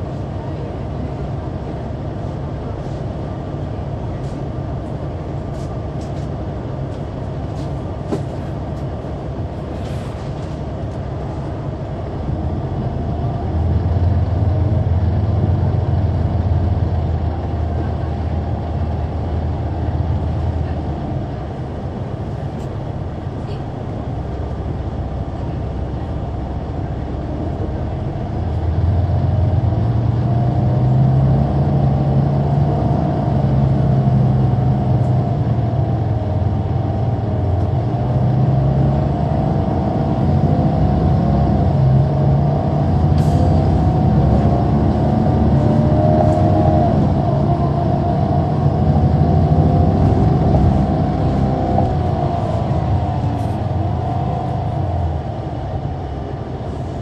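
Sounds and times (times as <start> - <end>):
bus diesel engine accelerating: 0.0 - 57.0
steady high howl: 43.8 - 57.0.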